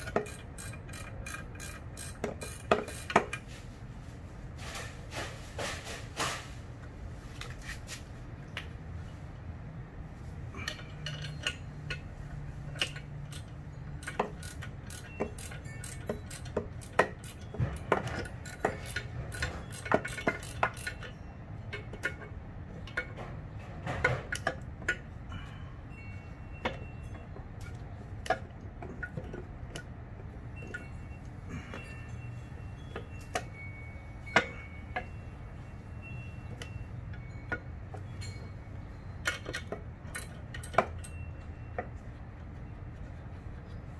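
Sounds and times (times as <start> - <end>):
metallic clinks of hand tools: 0.0 - 3.4, 10.6 - 22.2, 36.0 - 41.9.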